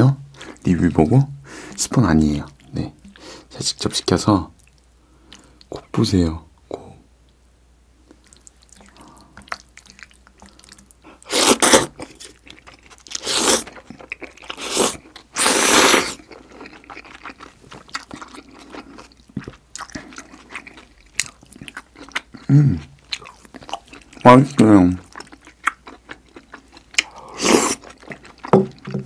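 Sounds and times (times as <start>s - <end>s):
wet chewing: 8.1s - 29.0s
slurping from a bowl: 8.8s - 16.6s, 27.0s - 28.0s.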